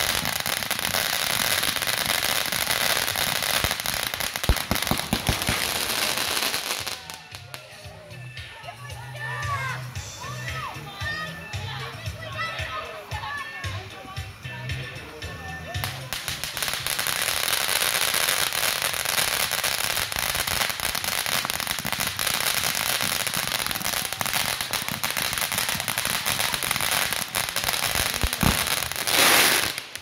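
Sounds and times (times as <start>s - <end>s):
fireworks fountain crackling: 0.0s - 30.0s
fireworks hissing rush: 0.0s - 30.0s.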